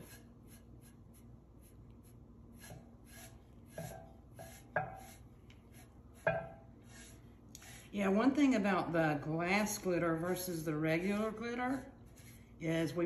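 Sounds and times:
brush sweeping glitter: 0:00.0 - 0:08.4, 0:10.5 - 0:13.0.

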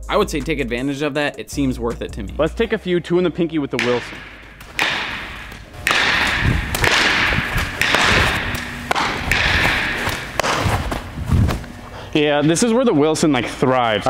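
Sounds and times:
thumps of feet and ball: 0:03.8 - 0:11.8
ground balls swishing on turf: 0:06.5 - 0:11.9.

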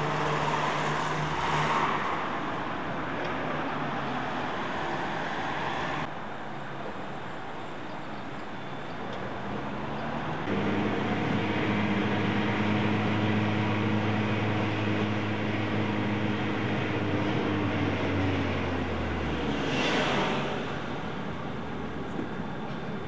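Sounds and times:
street traffic noise: 0:00.0 - 0:23.0
car engine and road hum: 0:09.1 - 0:23.0.

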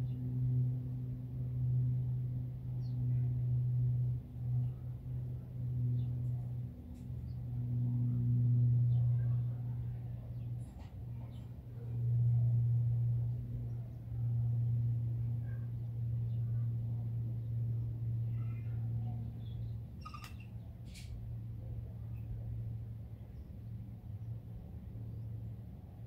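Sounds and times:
low motor hum: 0:00.0 - 0:26.0
faint bird chirps: 0:18.3 - 0:20.7.

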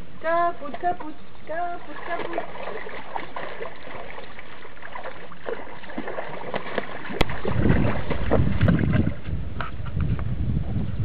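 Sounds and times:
water sloshing and lapping: 0:00.4 - 0:10.0
small splashes: 0:00.7 - 0:09.3.

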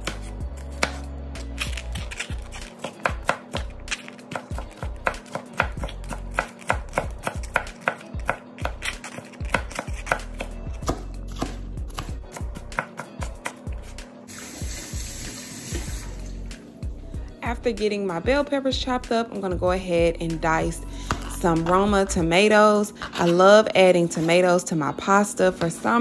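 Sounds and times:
knife chopping on plastic board: 0:00.0 - 0:01.0, 0:04.3 - 0:13.6.

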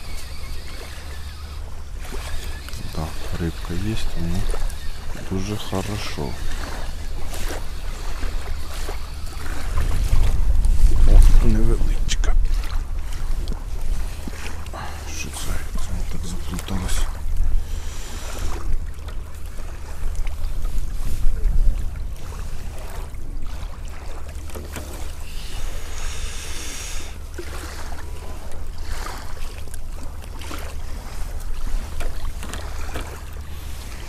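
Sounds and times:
wind buffeting microphone: 0:00.0 - 0:24.2.

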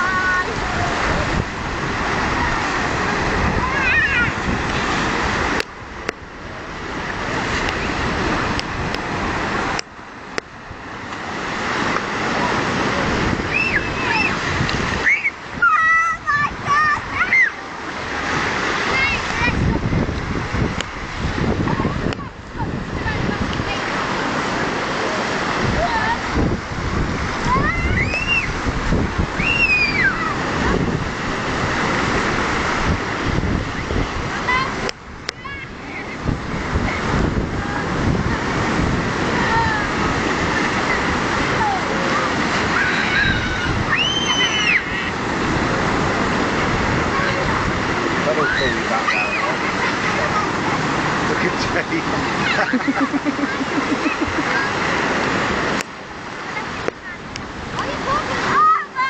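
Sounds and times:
sea surf breaking on rocks: 0:00.0 - 0:59.0
children shouting: 0:03.5 - 0:04.4, 0:13.5 - 0:17.6, 0:27.4 - 0:28.6, 0:29.4 - 0:30.7, 0:40.8 - 0:45.2, 0:48.2 - 0:50.6, 0:52.3 - 0:54.8
high rising and falling cry: 0:29.3 - 0:30.4, 0:42.6 - 0:45.2.

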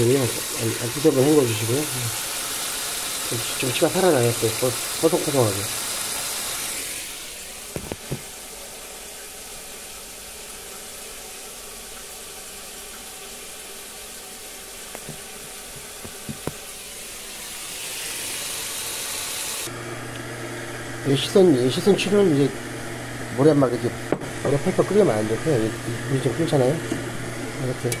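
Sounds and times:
tap water running: 0:00.0 - 0:28.0.

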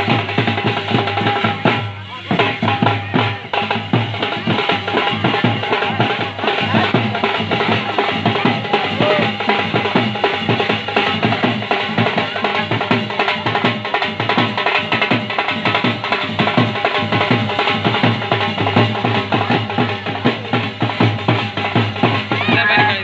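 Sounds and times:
fast steady drumming: 0:00.0 - 0:23.0
loud dance music: 0:22.3 - 0:23.0.

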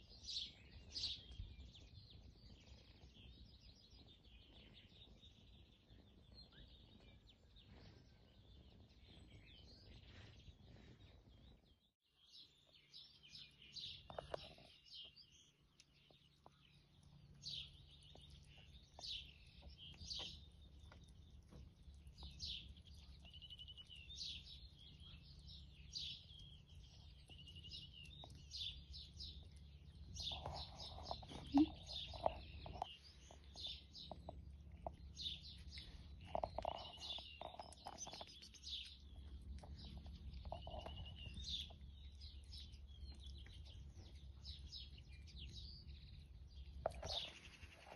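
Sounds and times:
faint small birds chirping: 0:00.0 - 0:47.9.

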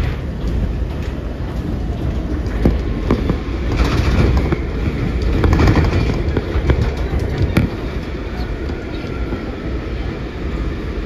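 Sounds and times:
wheels clicking over rail joints: 0:00.0 - 0:09.4
train low rumble: 0:00.0 - 0:11.0.

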